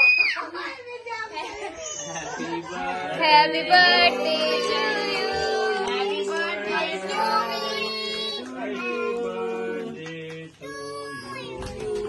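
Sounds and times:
children and women singing: 2.7 - 12.0.

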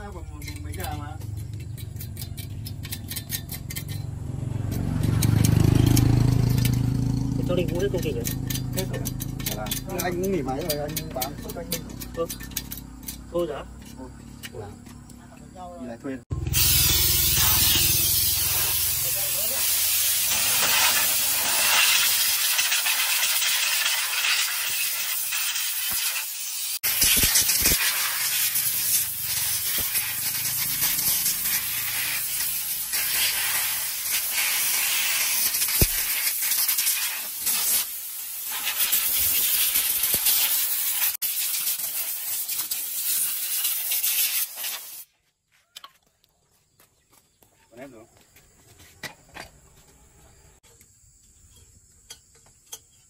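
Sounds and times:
pressurised spray hissing: 16.3 - 45.1.

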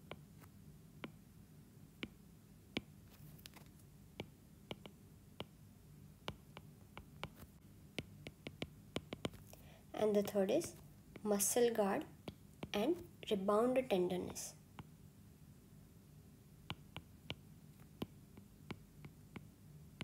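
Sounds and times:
stylus tapping on tablet screen: 0.0 - 1.2, 2.0 - 5.6, 6.2 - 11.4, 12.2 - 13.4, 16.6 - 20.0.

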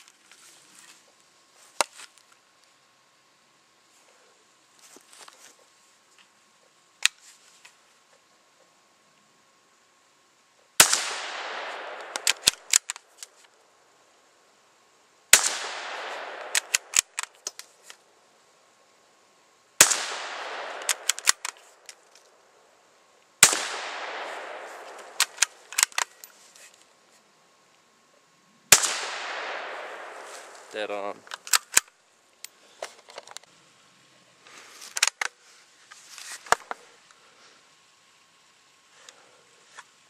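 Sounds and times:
rifle shots echoing: 10.8 - 12.8, 15.3 - 17.2, 19.8 - 21.6, 23.4 - 25.9, 28.7 - 30.6
rifle bolt metallic clicks: 11.8 - 13.3, 16.0 - 17.7, 20.6 - 22.0, 25.0 - 26.3, 31.2 - 32.6.

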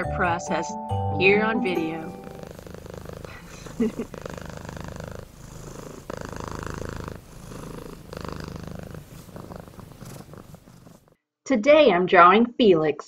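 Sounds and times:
cat purring: 1.6 - 11.2.

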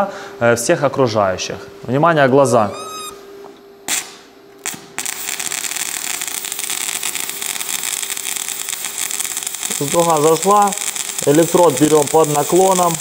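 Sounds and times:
welding arc crackling: 3.9 - 13.0
welding electrode scratching plate: 3.9 - 13.0.

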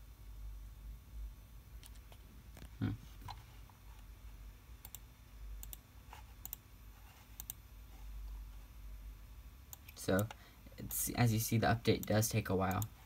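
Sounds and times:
computer mouse clicks: 4.8 - 6.6, 7.3 - 7.6, 9.7 - 11.0, 12.0 - 13.0.

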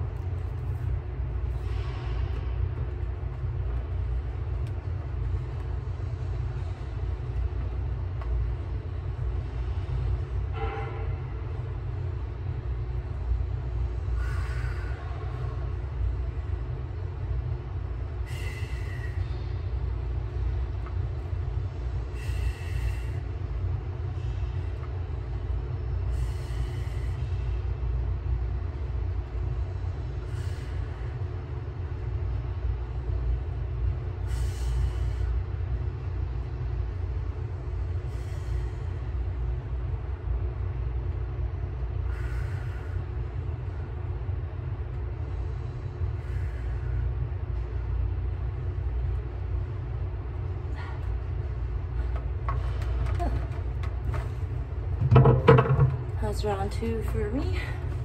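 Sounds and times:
faint hum: 0.0 - 58.0
ventilation rumble: 0.0 - 58.0.

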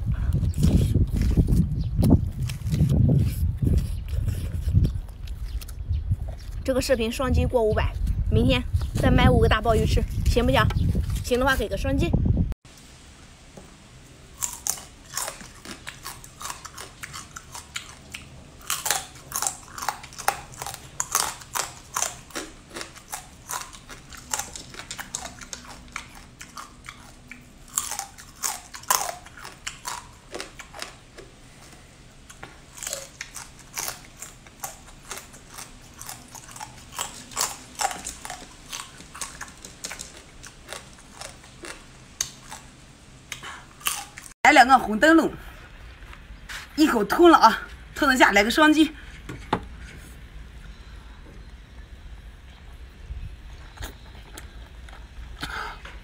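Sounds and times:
crunching crab shells: 32.6 - 42.7.

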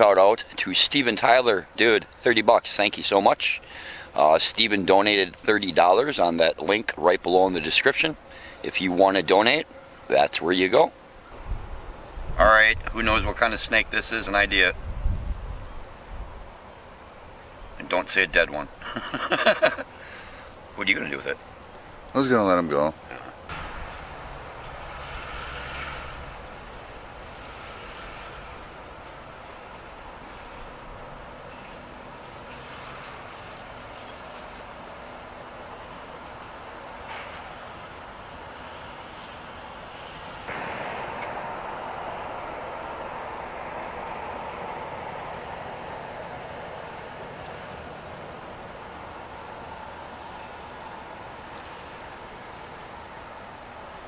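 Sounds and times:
insects trilling: 0.0 - 54.0
fast pulsing insect chirp: 0.6 - 54.0
broad rushing noise: 7.5 - 33.9, 38.6 - 53.8.

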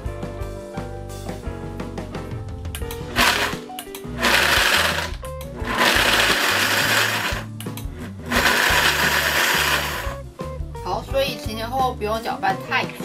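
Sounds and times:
blender pulsing: 3.0 - 10.2.

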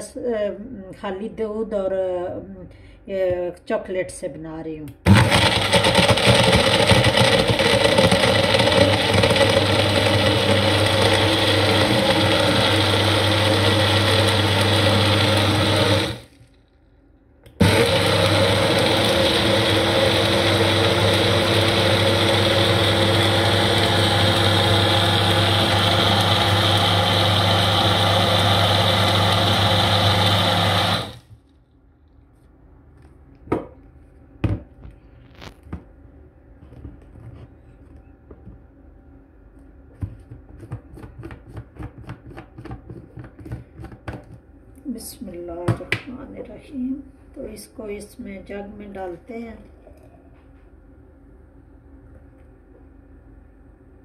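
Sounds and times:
blender running: 5.1 - 16.4, 17.5 - 31.3.

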